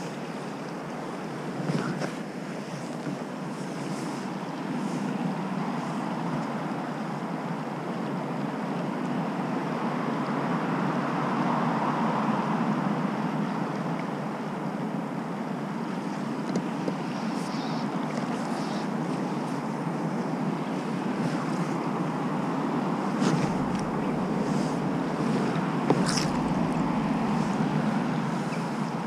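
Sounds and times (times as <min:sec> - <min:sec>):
river water rushing: 0:15.9 - 0:29.0
wind on microphone: 0:18.8 - 0:29.0.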